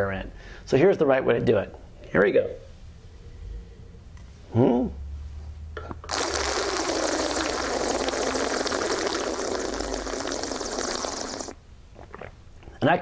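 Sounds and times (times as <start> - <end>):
wine slurping gurgle: 6.1 - 12.4.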